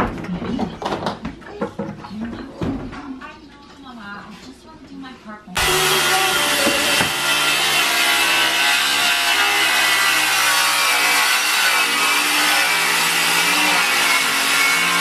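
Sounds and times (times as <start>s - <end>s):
circular saw cutting wood: 5.6s - 15.0s.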